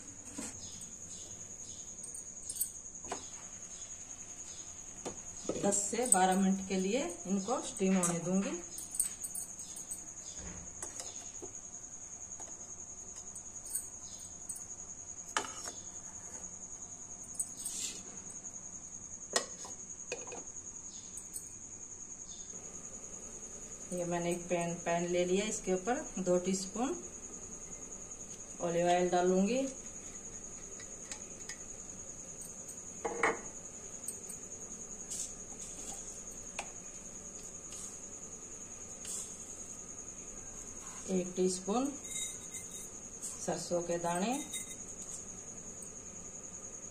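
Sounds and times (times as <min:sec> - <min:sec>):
steel bowls clinking on metal: 0:42.0 - 0:42.9.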